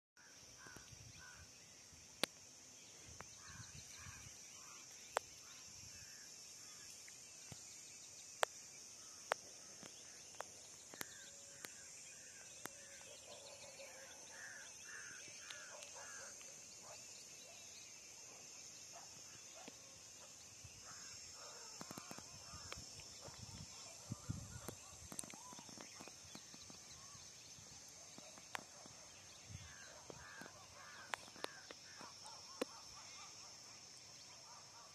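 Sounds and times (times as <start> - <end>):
high insect drone: 0.2 - 34.9
bird calls: 8.4 - 34.9.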